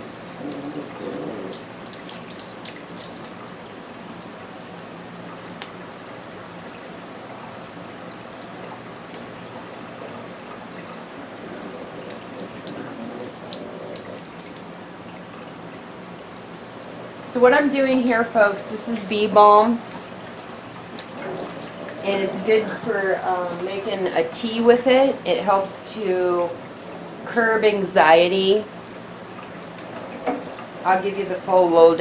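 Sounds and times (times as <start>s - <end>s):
water splashing: 0.0s - 32.0s
faucet spraying into sink: 8.1s - 31.6s.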